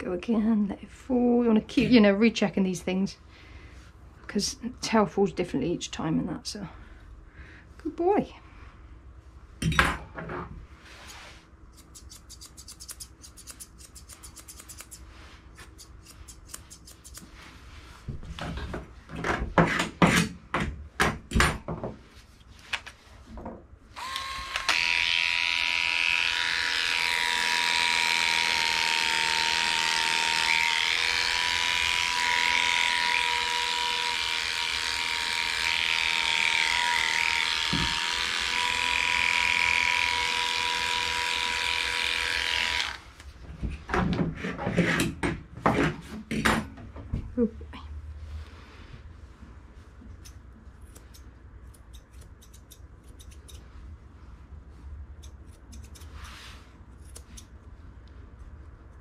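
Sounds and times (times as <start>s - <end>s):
electric clipper humming: 24.0s - 43.0s.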